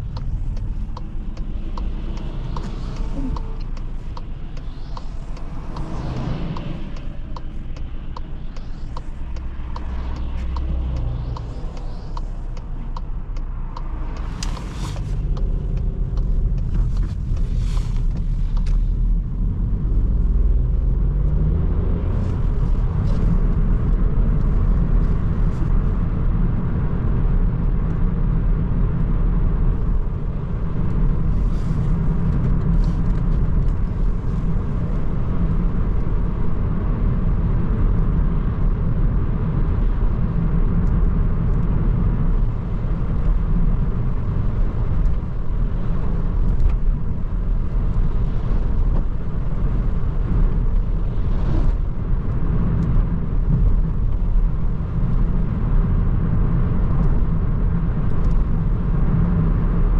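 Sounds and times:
car engine running: 0.0s - 59.9s
tyre and road rumble: 0.0s - 59.9s.

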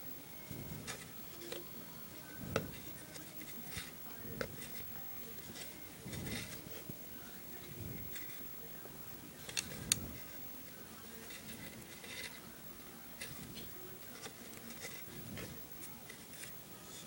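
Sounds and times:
soft rustling of strings: 2.4s - 17.0s.

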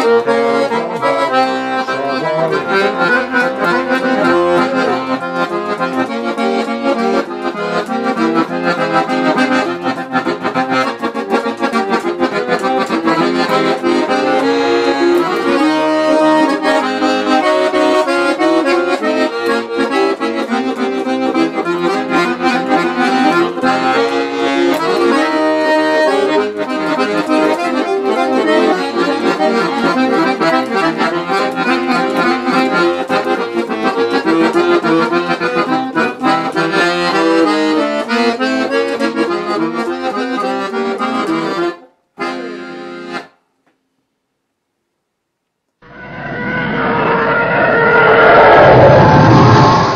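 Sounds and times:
piano accordion playing: 0.0s - 43.4s.

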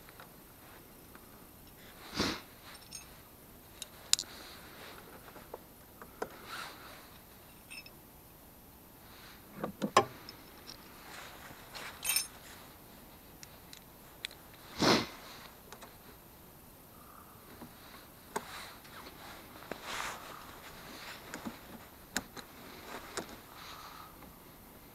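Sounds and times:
socket wrench clinking: 7.7s - 7.9s, 12.0s - 12.3s.

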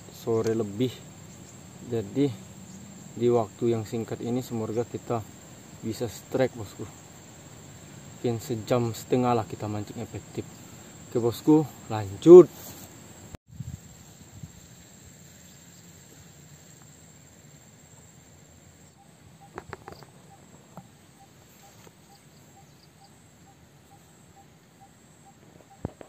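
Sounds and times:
faint insect chirring: 0.0s - 26.0s.

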